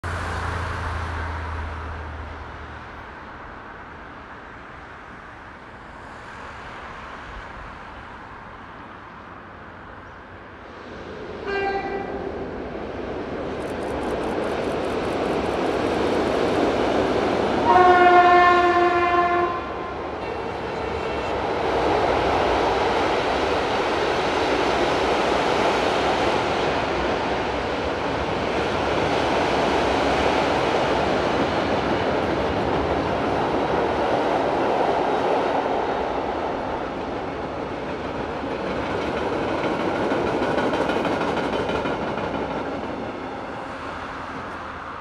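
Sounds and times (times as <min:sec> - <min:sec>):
freight train crossing rail bridge: 0:00.0 - 0:45.0
locomotive horn blast: 0:11.4 - 0:12.2, 0:17.6 - 0:21.5.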